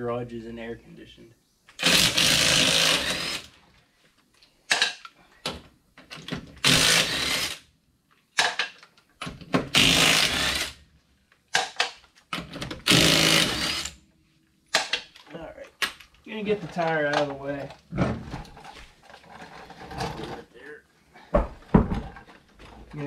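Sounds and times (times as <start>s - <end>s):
impact wrench rattling: 1.8s - 3.5s.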